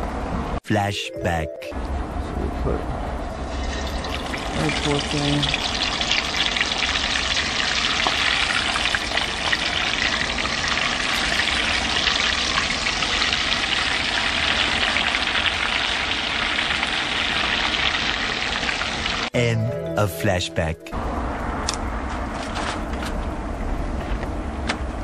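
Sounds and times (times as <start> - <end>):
oil sizzling and crackling: 3.5 - 19.3.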